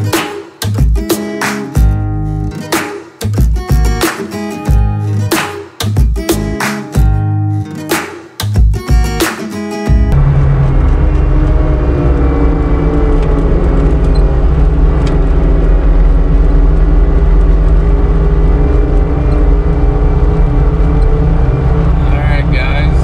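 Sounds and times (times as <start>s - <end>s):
diesel engine running: 10.1s - 23.0s
faint whine: 10.2s - 23.0s.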